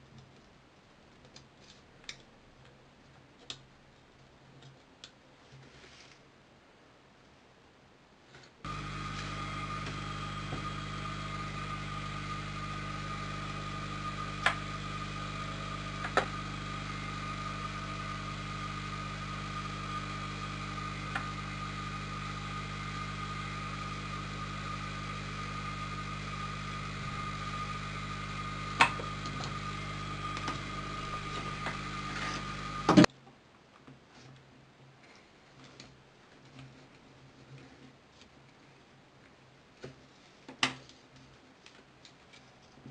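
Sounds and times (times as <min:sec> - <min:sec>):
steady machine hum: 0:08.7 - 0:33.1.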